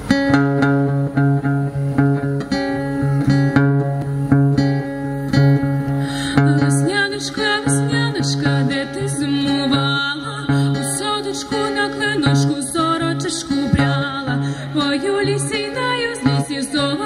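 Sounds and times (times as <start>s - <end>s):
bass notes: 0.0s - 6.9s
acoustic guitars picking: 0.0s - 17.0s
woman singing: 6.2s - 17.0s.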